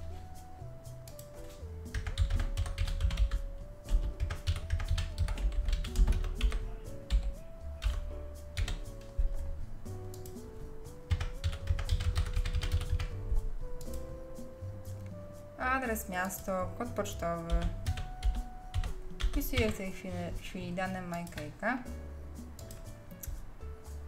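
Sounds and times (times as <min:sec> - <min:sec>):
background music with bass: 0:00.0 - 0:15.9, 0:21.7 - 0:24.0
computer keyboard typing: 0:01.0 - 0:08.9, 0:10.1 - 0:10.4, 0:11.1 - 0:13.2, 0:13.8 - 0:14.0, 0:17.4 - 0:20.1, 0:20.9 - 0:21.6, 0:22.6 - 0:23.4.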